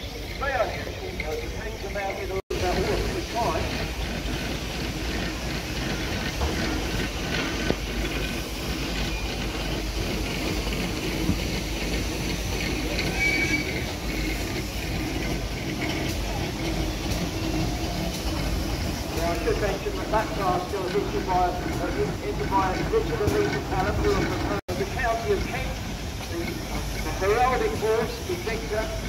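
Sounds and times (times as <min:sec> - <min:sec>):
faint passenger voices: 0:15.8 - 0:29.0.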